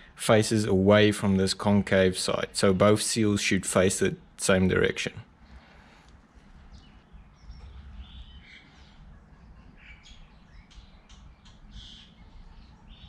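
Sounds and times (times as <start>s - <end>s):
faint bird chirps: 6.4s - 13.0s.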